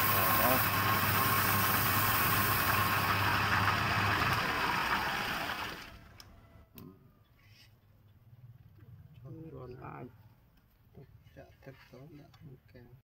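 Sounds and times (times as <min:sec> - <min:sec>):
rushing friction hiss: 0:00.0 - 0:03.7
wood lathe humming: 0:00.0 - 0:06.0.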